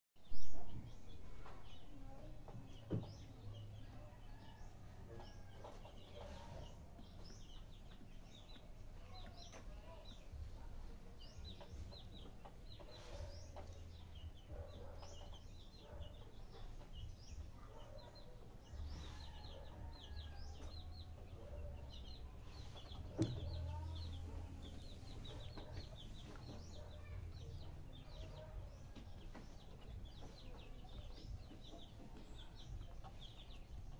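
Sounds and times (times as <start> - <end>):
chickens clucking: 0.4 - 33.9.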